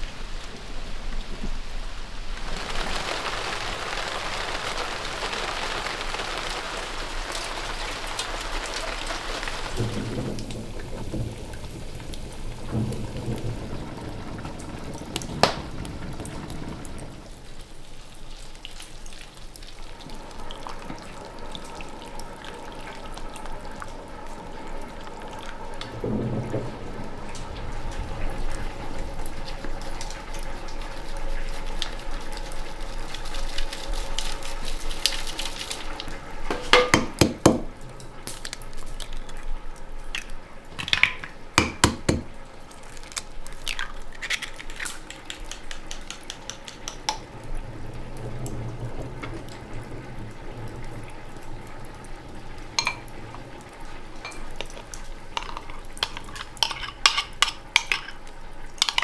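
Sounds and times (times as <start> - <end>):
sharp knocks: 36.6 - 37.7, 41.6 - 42.3
metal utensils clinking on dishes: 55.4 - 58.2.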